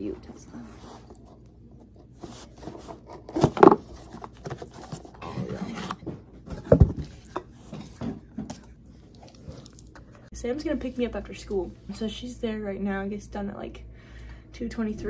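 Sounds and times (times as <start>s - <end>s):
cardboard scraping and rustling: 0.6s - 7.2s.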